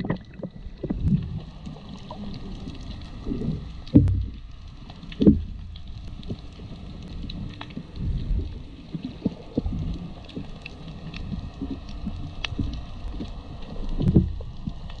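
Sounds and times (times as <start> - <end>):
underwater rumble of moving water: 0.0 - 15.0.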